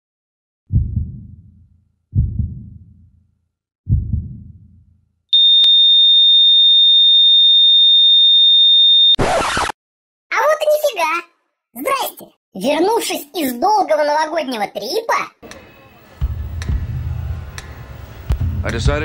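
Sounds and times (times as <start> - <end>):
deep booming hits: 0.7 - 3.1, 3.9 - 4.9.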